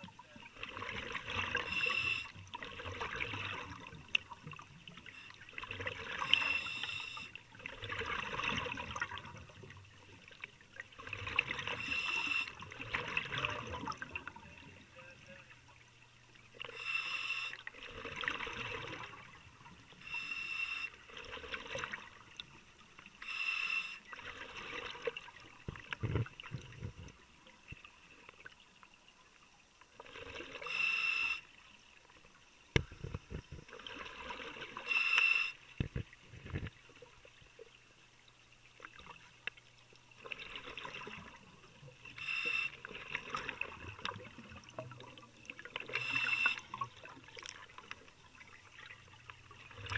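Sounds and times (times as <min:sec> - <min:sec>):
gurgling exhaled bubbles: 0:00.0 - 0:04.6, 0:05.5 - 0:06.7, 0:07.5 - 0:09.7, 0:11.0 - 0:14.7, 0:17.8 - 0:19.4
hissing regulator inhale: 0:01.5 - 0:02.4, 0:06.2 - 0:07.4, 0:11.7 - 0:12.7, 0:16.6 - 0:17.7, 0:20.0 - 0:21.0, 0:23.2 - 0:24.1, 0:30.6 - 0:31.5, 0:34.8 - 0:35.6, 0:42.2 - 0:42.9, 0:45.9 - 0:46.7.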